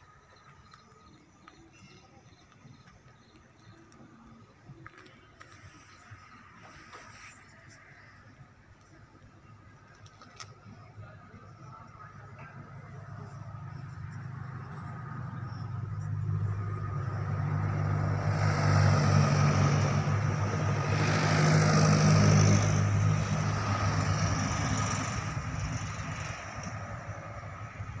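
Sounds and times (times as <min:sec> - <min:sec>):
truck engine hum: 0:08.6 - 0:28.0.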